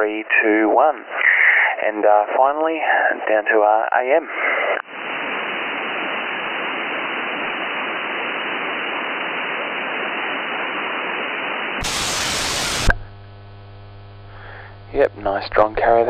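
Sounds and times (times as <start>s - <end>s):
radio static hiss: 0.0s - 16.0s
low steady hum: 11.8s - 16.0s.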